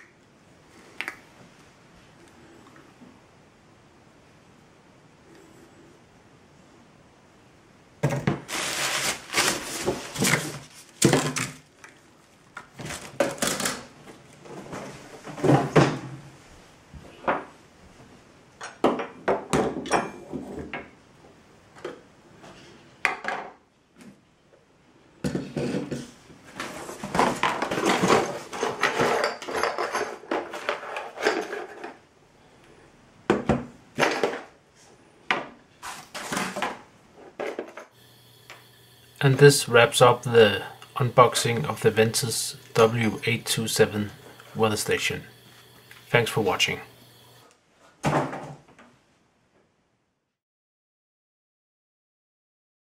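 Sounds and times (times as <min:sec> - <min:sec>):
plastic parts clattering on table: 0:08.0 - 0:12.0, 0:12.8 - 0:13.9, 0:26.7 - 0:32.0, 0:34.0 - 0:34.5.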